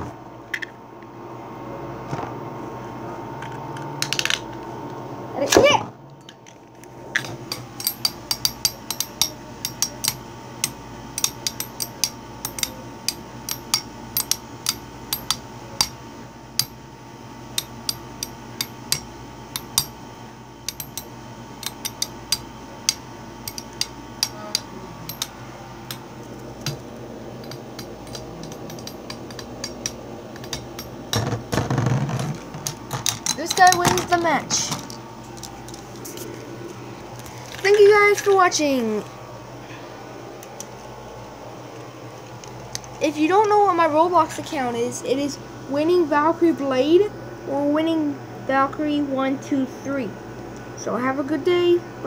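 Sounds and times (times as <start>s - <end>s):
spinning tops whirring: 20.6s - 39.1s.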